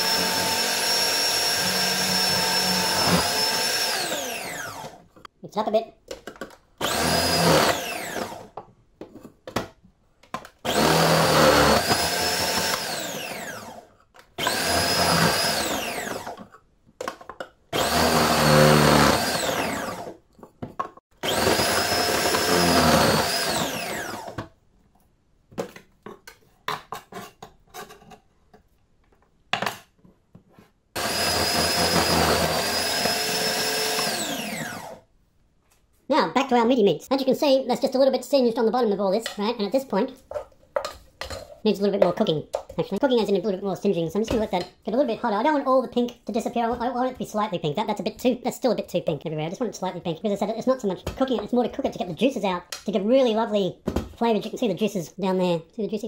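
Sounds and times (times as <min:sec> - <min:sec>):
food processor motor whine: 0:00.0 - 0:05.1, 0:06.8 - 0:08.6, 0:10.6 - 0:16.5, 0:17.8 - 0:20.2, 0:21.2 - 0:24.5, 0:31.0 - 0:35.1.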